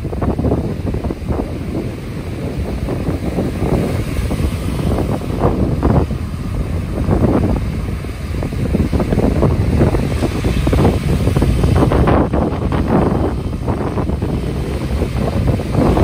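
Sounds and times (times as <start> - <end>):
waves breaking on shore: 0.0 - 16.0
wind on microphone: 0.0 - 16.0.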